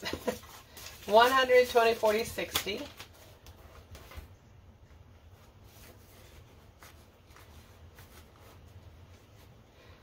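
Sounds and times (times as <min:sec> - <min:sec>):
banknotes and wallet rustling: 0:00.0 - 0:04.4.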